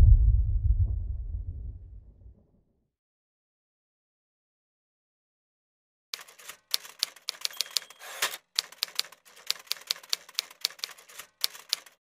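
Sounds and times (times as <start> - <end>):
keyboard keys typing: 6.2 - 12.0.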